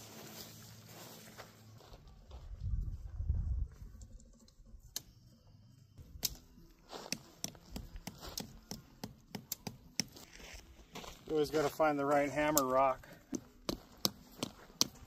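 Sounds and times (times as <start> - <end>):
tent gear rustling: 0.0 - 2.1.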